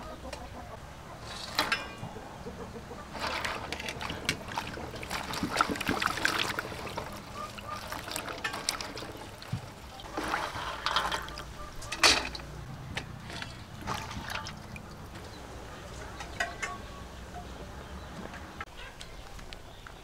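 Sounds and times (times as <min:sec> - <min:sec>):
water splashing in metal basin: 0:03.1 - 0:16.8.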